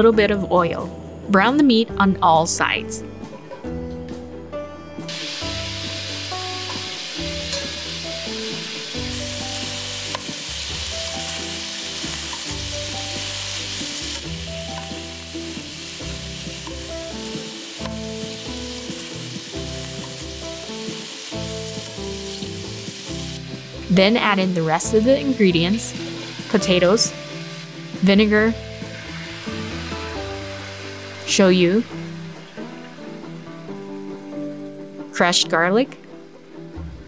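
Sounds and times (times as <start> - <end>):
meat sizzling in a pan: 5.1 - 34.7.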